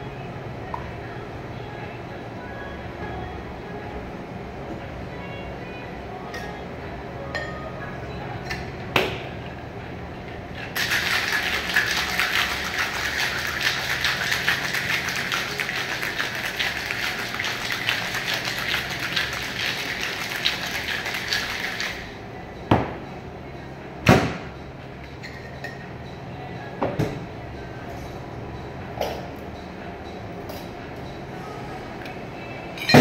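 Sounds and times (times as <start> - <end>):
ice rattling in shaker: 10.6 - 22.0.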